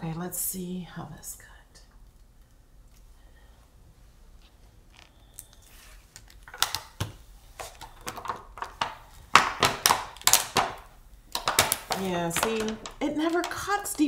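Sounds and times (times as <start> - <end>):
plastic sheet crackling: 4.9 - 14.0.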